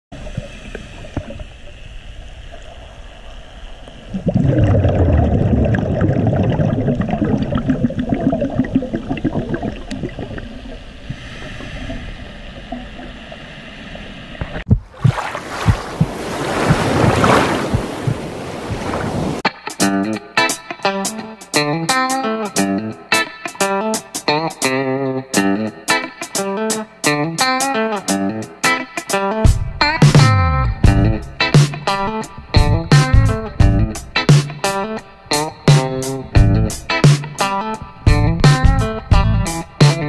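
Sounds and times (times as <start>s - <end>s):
underwater bubbles rushing: 0.2s - 13.5s, 14.3s - 19.2s
rushing noise above water: 9.5s - 19.4s.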